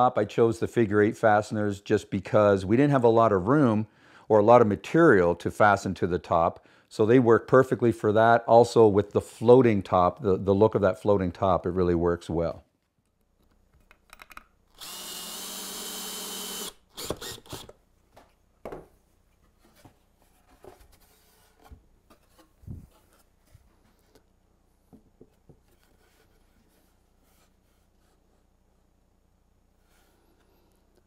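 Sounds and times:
cordless drill driving screw: 14.7s - 17.8s.

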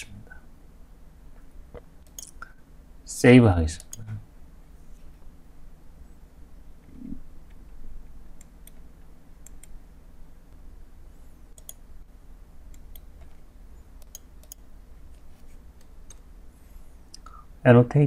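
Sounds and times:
faint low hum: 0.0s - 18.0s
computer mouse clicking: 2.0s - 2.4s, 8.4s - 9.8s, 11.5s - 11.8s, 12.7s - 13.4s, 14.0s - 15.2s, 15.8s - 16.3s.

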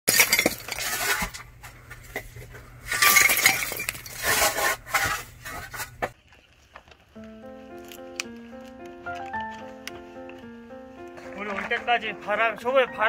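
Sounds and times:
ceramic pieces clattering: 0.1s - 1.4s, 2.9s - 5.9s.

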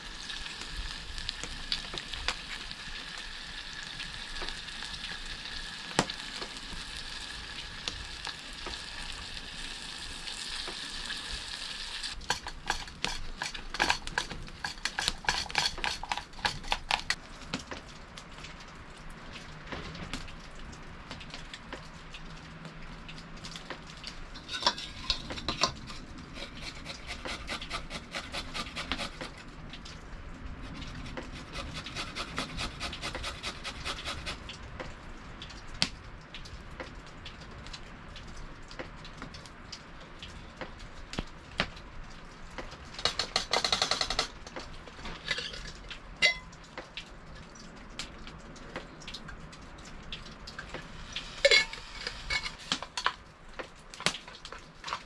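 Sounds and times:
campfire crackling: 0.0s - 55.0s
metal cooking gear clinking: 24.4s - 26.0s, 45.2s - 46.5s.

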